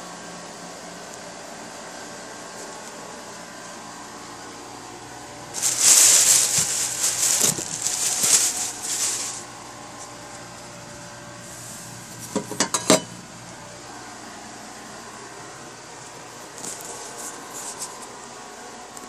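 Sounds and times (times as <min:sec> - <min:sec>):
plastic bag rustling: 0:05.5 - 0:10.1, 0:16.5 - 0:18.0.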